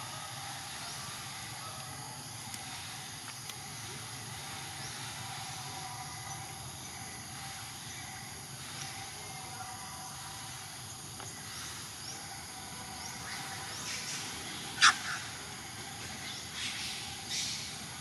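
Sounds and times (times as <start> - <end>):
droning insects: 0.0 - 18.0
faint ticks: 2.4 - 3.6.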